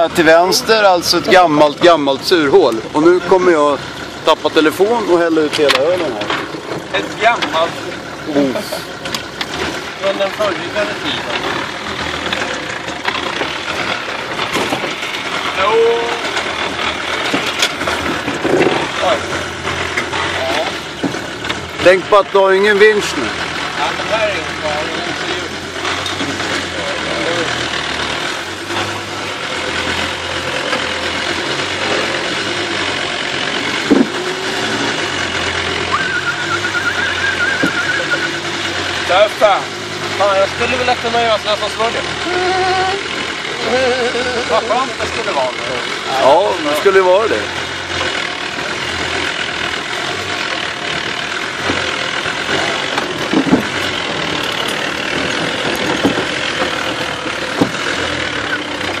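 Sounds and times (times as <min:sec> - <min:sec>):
diesel engine running at low revs: 0:00.0 - 0:59.0
sharp knocks: 0:33.8 - 0:34.3, 0:53.0 - 0:53.8, 0:55.6 - 0:56.7, 0:57.5 - 0:57.9.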